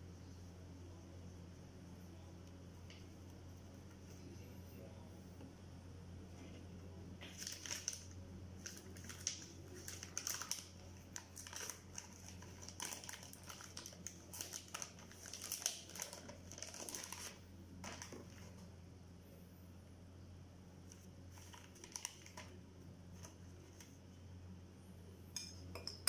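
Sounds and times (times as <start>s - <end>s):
steady low hum: 0.0s - 26.0s
paper wrappers crinkling: 7.2s - 18.7s, 20.9s - 24.0s.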